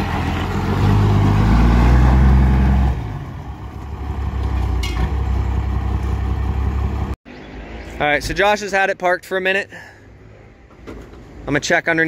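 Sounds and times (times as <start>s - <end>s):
diesel engine droning: 0.0s - 7.2s.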